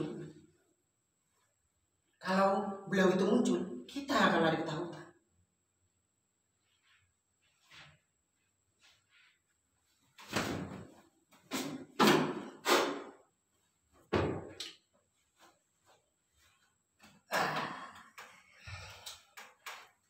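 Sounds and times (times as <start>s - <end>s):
wooden chair thudding on floor: 14.1s - 14.6s.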